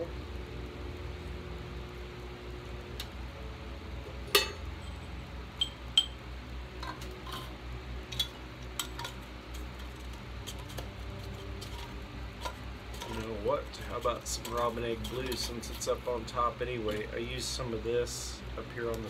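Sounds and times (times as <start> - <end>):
metal tins clinking: 6.8 - 7.5, 8.1 - 16.0.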